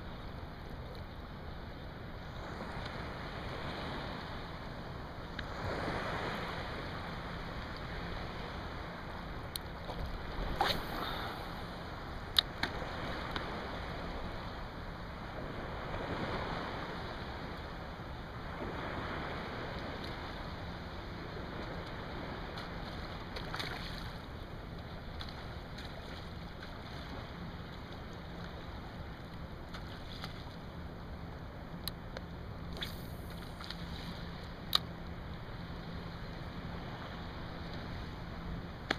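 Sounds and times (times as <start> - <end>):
small waves lapping: 2.2 - 38.9
faint ticks: 9.5 - 10.2.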